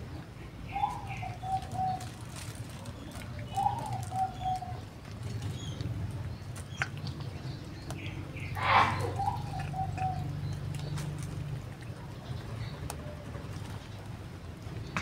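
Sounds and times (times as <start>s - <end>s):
dove cooing: 0.7s - 6.2s, 8.3s - 11.3s.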